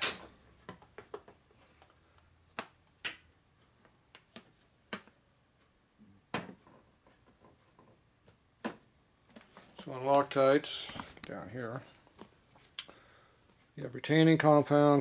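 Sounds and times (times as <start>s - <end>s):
plastic bottles clicking and tapping: 0.6s - 1.9s.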